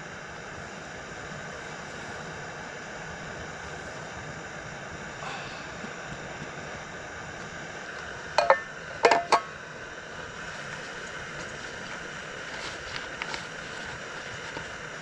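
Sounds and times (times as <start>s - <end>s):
steady background hiss: 0.0s - 15.0s
metal cookware clinking: 8.4s - 9.5s.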